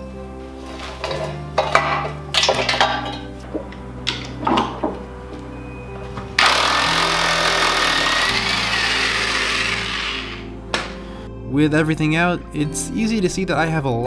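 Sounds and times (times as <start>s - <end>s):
electric impact wrench hammering: 6.4s - 10.5s.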